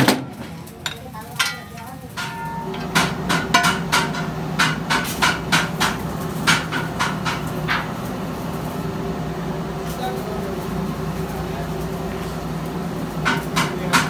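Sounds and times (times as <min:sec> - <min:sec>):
steel wheel rim clanking: 0:00.0 - 0:08.0.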